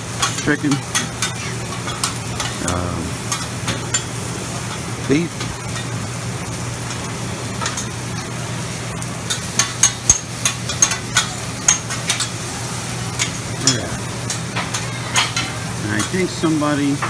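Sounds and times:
food sizzling: 0.0 - 17.0
metal spatulas clacking on griddle: 0.2 - 4.1, 7.6 - 7.9, 9.3 - 12.4, 13.2 - 16.2.

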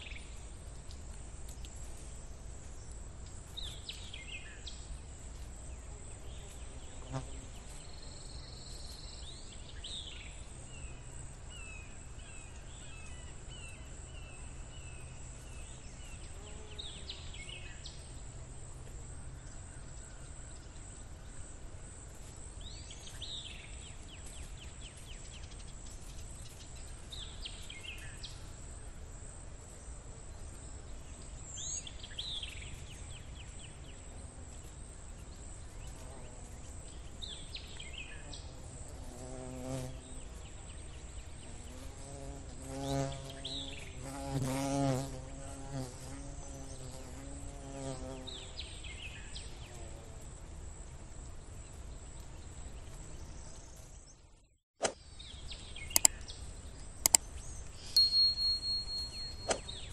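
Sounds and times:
birds chirping: 55.2 - 59.9.

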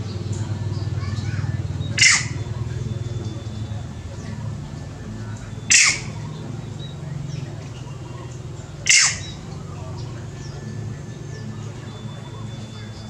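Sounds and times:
steady low hum: 0.0 - 13.0
shrill squawking animal call: 1.0 - 4.3, 5.5 - 7.2, 7.8 - 9.7.

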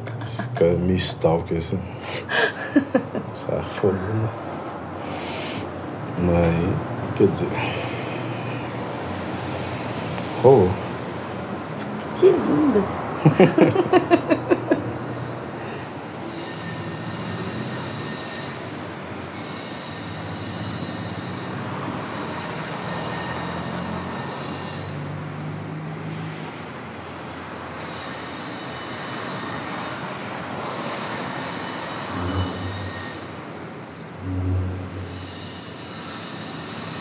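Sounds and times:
noisy ambient rumble: 32.1 - 33.3, 34.2 - 35.7.

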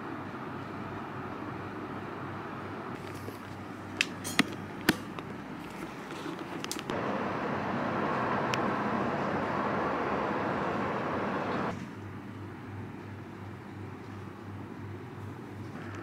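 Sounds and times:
background noise rush: 0.0 - 11.8.

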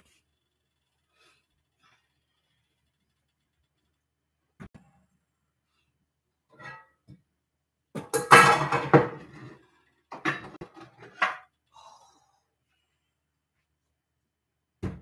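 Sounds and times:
dishes and pans clattering: 8.0 - 11.5.

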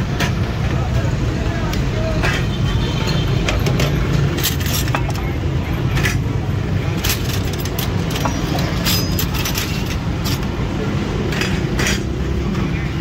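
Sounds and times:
metal clinks and knocks: 3.4 - 10.6.

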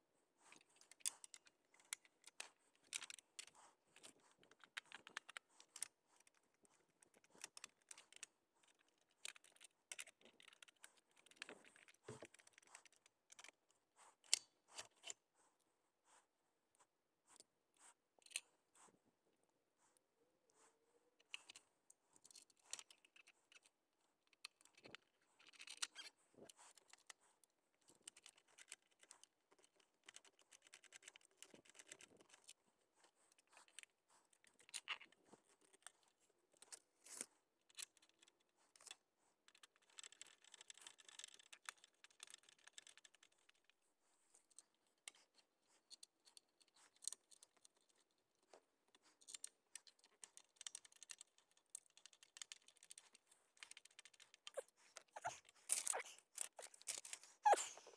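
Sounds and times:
small clicks and scrapes on metal: 22.2 - 43.8, 44.4 - 57.6.

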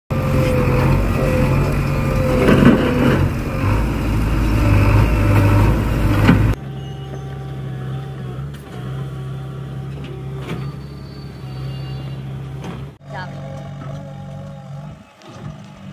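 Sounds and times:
diesel engine running hard: 0.1 - 15.9
engine idling hum: 0.1 - 15.9
metal clanks: 0.3 - 7.3.

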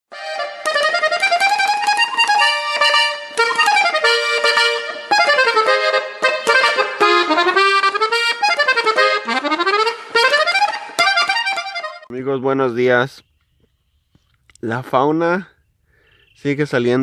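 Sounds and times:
accordion music: 0.1 - 12.1.

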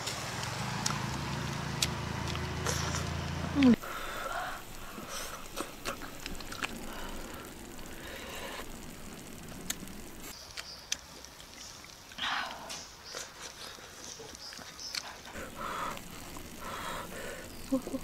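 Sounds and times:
slurping: 2.6 - 3.8
chewing: 4.8 - 7.2, 10.6 - 17.8.

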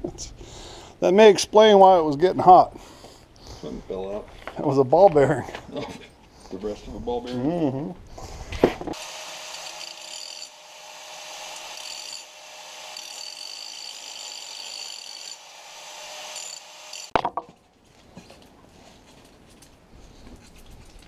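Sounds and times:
angle grinder cutting steel: 9.0 - 17.2.

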